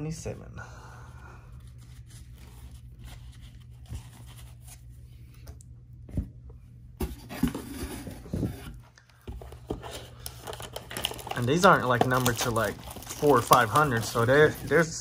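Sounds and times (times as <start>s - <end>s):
low steady hum: 0.0s - 15.0s
cards and packaging rustling: 7.3s - 15.0s.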